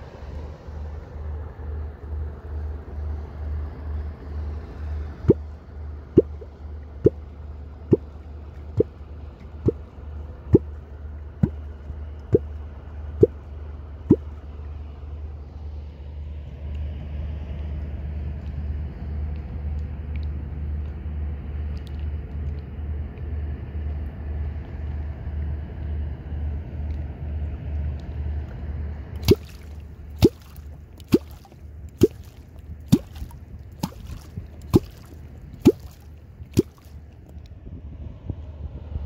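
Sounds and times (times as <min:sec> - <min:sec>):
hollow pops in water: 0:06.2 - 0:07.2, 0:29.2 - 0:37.0
outboard motor throbbing: 0:28.7 - 0:37.2.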